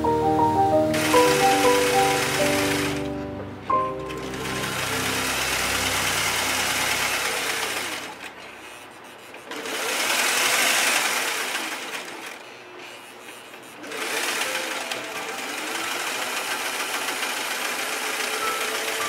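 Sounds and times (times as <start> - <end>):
background music: 0.0 - 8.1, 18.0 - 19.0
sewing machine stitching: 0.9 - 3.1, 4.0 - 19.0.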